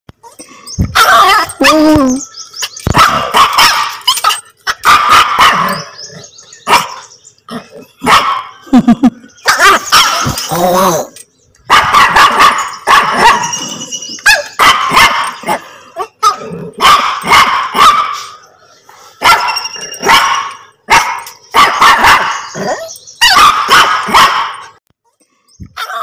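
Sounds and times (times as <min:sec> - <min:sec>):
small dog barking: 0:03.0 - 0:05.8, 0:06.6 - 0:07.0, 0:08.0 - 0:08.5, 0:11.7 - 0:13.6, 0:14.3 - 0:15.6, 0:16.2 - 0:18.3, 0:19.2 - 0:24.7.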